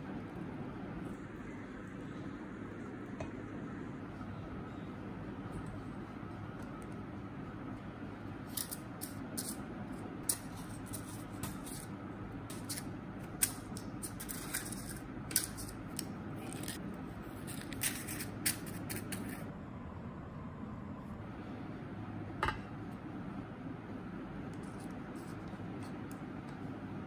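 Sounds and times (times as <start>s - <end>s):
paper liners rustling and ticking: 13.4s - 16.8s.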